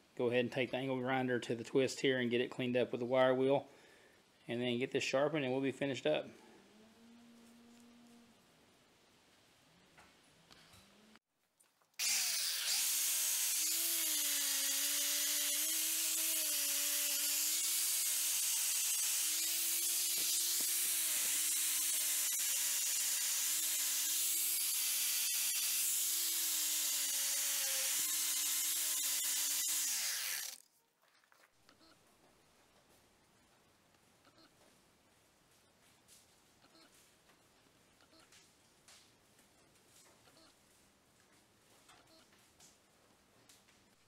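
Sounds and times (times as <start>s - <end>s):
angle grinder motor hum: 12.0s - 30.6s.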